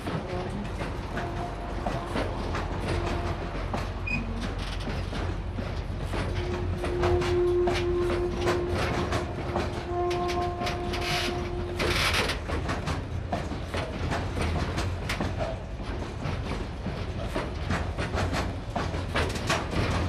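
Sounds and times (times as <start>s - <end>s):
train wheels clattering over rail joints: 0.0s - 20.0s
steady squealing tone: 6.1s - 12.6s.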